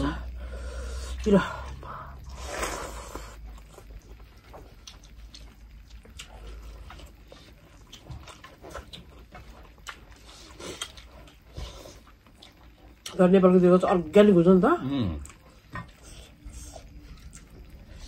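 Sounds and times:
wet chewing and lip-smacking: 2.2s - 13.2s, 15.2s - 18.0s.

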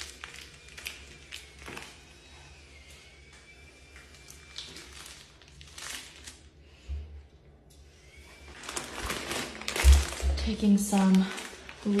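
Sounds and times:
plastic package crinkling: 0.0s - 2.1s, 4.1s - 6.5s, 8.4s - 12.0s.

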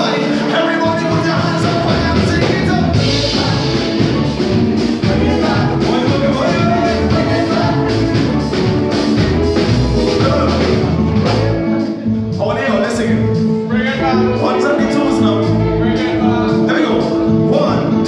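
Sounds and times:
live band playing: 0.0s - 18.0s
person singing: 0.0s - 18.0s.

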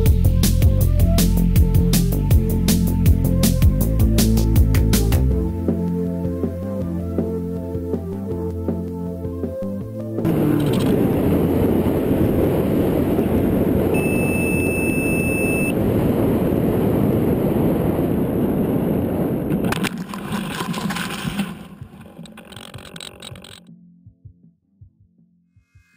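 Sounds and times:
airflow and motor noise: 10.2s - 23.6s
high electronic beep: 13.9s - 15.8s
rustling and scraping in crops: 19.6s - 23.6s.

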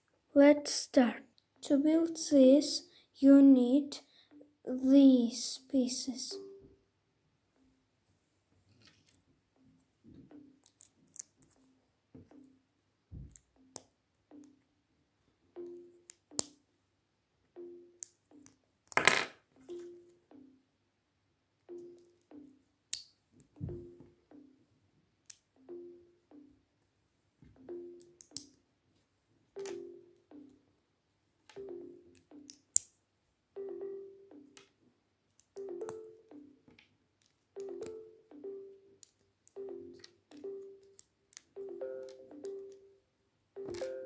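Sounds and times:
soft plucked background music: 0.3s - 6.9s, 8.7s - 14.8s, 15.4s - 16.7s, 17.5s - 20.7s, 21.6s - 26.8s, 27.4s - 30.8s, 31.4s - 32.9s, 33.5s - 44.0s
plastic bricks clicking: 10.6s - 11.6s, 16.1s - 16.6s, 18.0s - 19.4s.

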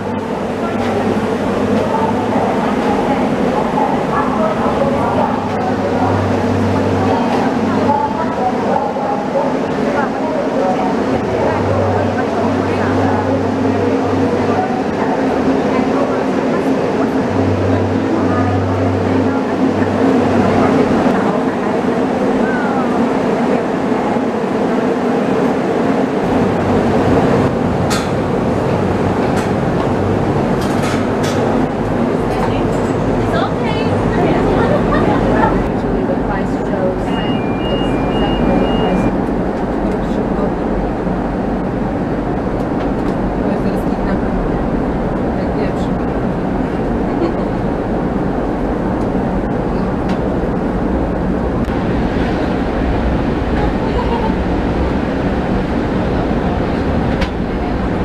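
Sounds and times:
steady mechanical hum: 0.0s - 58.0s
deep rumble: 26.2s - 58.0s.

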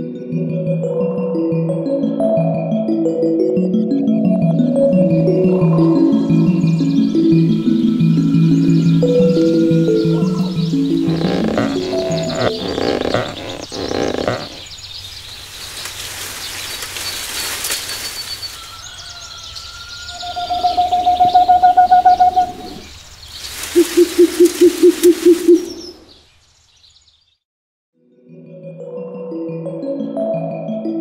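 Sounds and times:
owl hooting: 9.2s - 14.7s, 19.1s - 22.9s, 23.8s - 25.9s.

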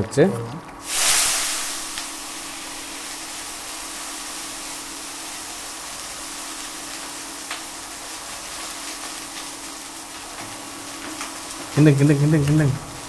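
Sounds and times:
low steady hum: 0.0s - 13.0s
chicken sizzling in hot oil: 0.8s - 13.0s.

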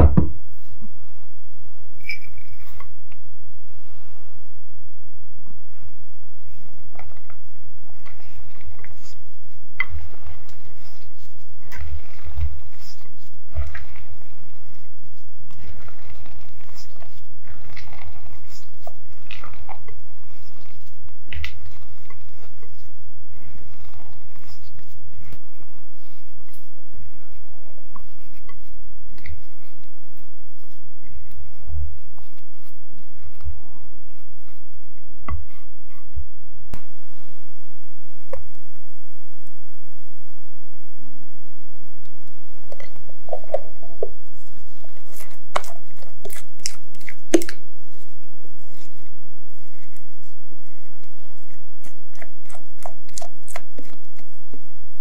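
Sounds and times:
steady low hum: 0.0s - 55.0s
spatula folding batter: 6.4s - 35.8s, 42.7s - 55.0s
spatula squelching in batter: 7.9s - 27.2s.

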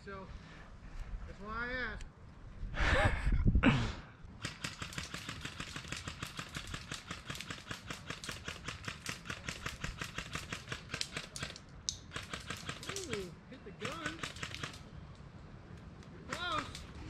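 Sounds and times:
rapid airsoft gunfire clicks: 4.4s - 15.2s, 15.8s - 17.0s.

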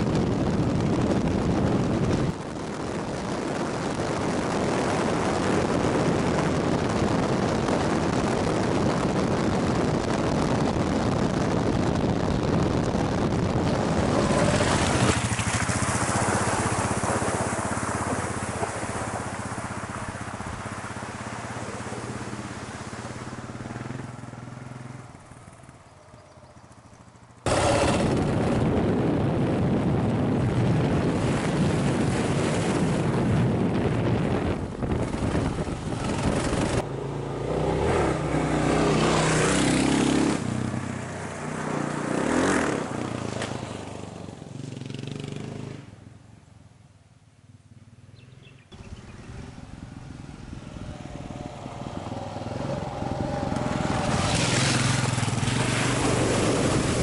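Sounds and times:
motorcycle engine running: 0.0s - 31.4s, 32.1s - 41.6s, 47.4s - 57.0s
wind rush on camera: 0.0s - 45.8s, 48.2s - 57.0s.

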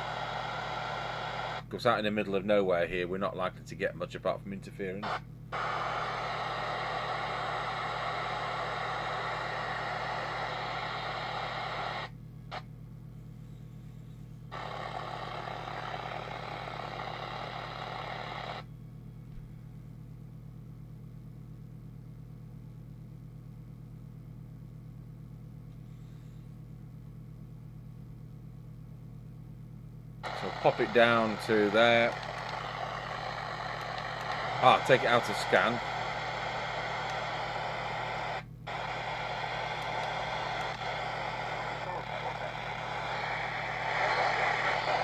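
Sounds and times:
radio receiver hiss: 0.0s - 1.9s, 5.0s - 12.7s, 14.5s - 18.7s, 30.2s - 45.0s
steady low hum: 0.0s - 45.0s.

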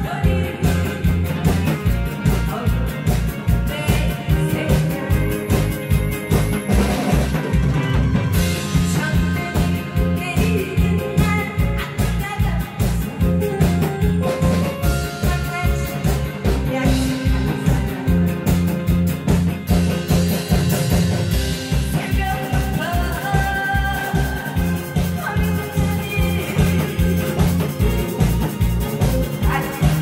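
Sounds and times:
woman singing into microphone: 0.0s - 6.8s, 8.7s - 13.5s, 15.0s - 18.4s, 21.8s - 27.4s, 29.4s - 30.0s
bass: 0.0s - 30.0s
loud amplified music: 0.0s - 30.0s
steady drum beat: 0.0s - 30.0s.

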